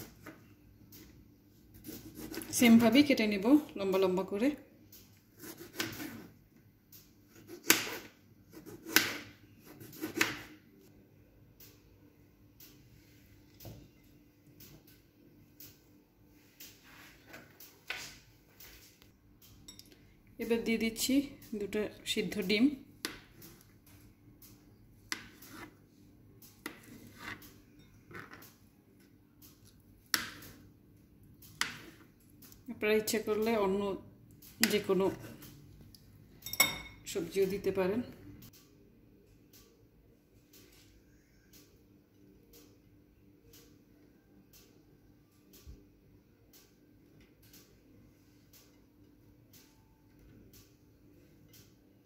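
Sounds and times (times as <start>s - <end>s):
knife slicing tomatoes: 1.7s - 2.9s, 5.3s - 6.3s, 7.3s - 10.5s.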